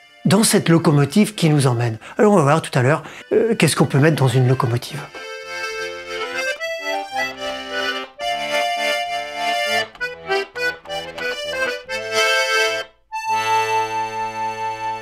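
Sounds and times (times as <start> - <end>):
button accordion playing: 0.0 - 15.0.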